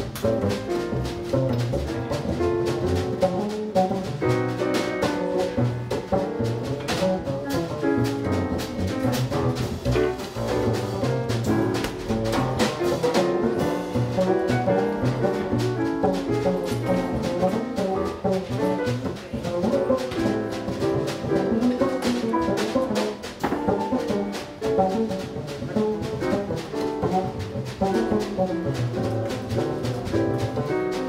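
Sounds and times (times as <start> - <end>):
double bass: 0.0 - 31.0
drum kit with cymbal strokes: 0.0 - 31.0
piano: 0.0 - 31.0.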